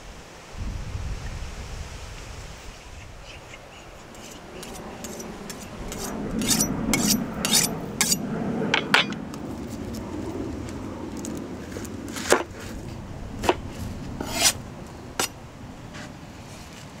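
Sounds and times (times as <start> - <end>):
knife scraping on sharpening rod: 4.2 - 8.2, 14.2 - 14.6.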